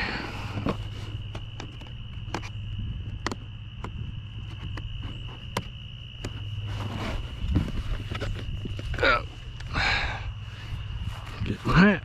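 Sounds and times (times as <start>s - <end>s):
crickets trilling: 0.0s - 12.0s
cardboard box being handled: 6.3s - 9.0s.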